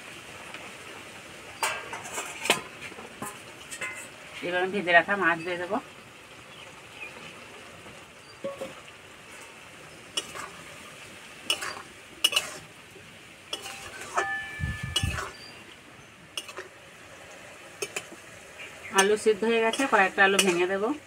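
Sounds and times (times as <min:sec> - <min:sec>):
faint sizzle: 0:00.0 - 0:21.0
metal spatula scraping in wok: 0:01.6 - 0:04.2, 0:08.4 - 0:10.8, 0:11.4 - 0:12.8, 0:13.5 - 0:15.6, 0:16.4 - 0:16.7, 0:19.0 - 0:20.9
spatula clanking against pan: 0:10.2 - 0:10.5, 0:11.5 - 0:12.6, 0:13.5 - 0:15.4, 0:16.4 - 0:16.7, 0:19.0 - 0:20.7.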